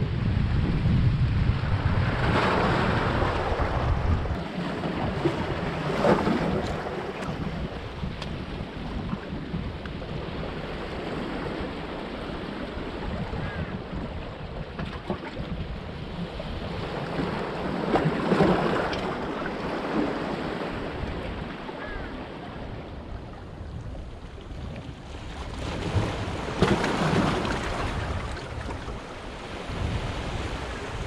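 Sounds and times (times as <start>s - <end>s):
waves splashing on stones: 25.7s - 28.6s.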